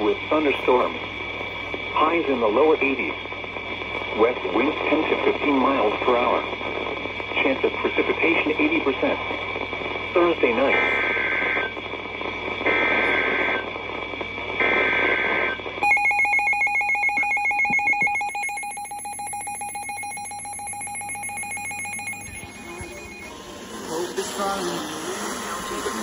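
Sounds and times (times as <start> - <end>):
warbling data tones: 10.1 - 26.0
steady warning alarm tone: 14.6 - 26.0.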